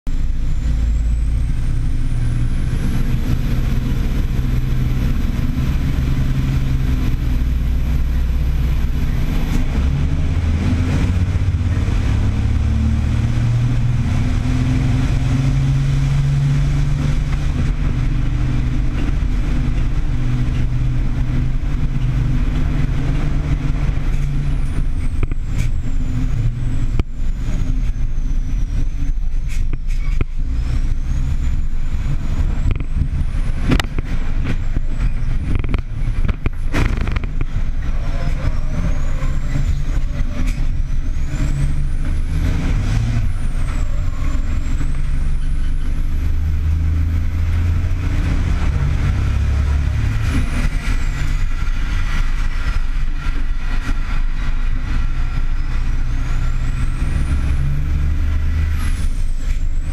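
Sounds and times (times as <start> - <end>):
truck diesel engines droning: 0.1 - 59.9.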